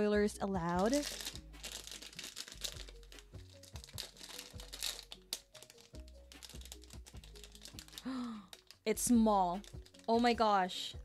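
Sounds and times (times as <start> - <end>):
soft background music: 0.0 - 11.0
plastic bag crinkling: 0.6 - 10.3.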